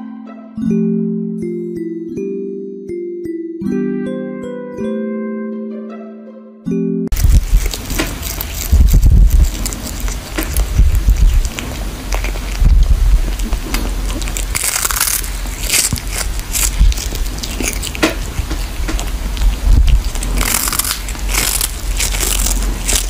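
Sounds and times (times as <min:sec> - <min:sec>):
cat crunching on fish: 0:07.1 - 0:23.0.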